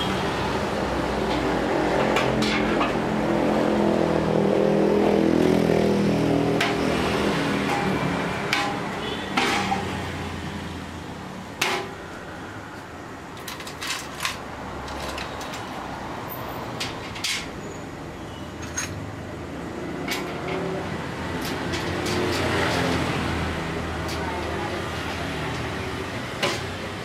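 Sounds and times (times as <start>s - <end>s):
parts clicking and knocking: 1.2s - 3.3s, 6.5s - 10.1s, 13.3s - 15.9s, 16.6s - 17.6s, 19.9s - 24.6s.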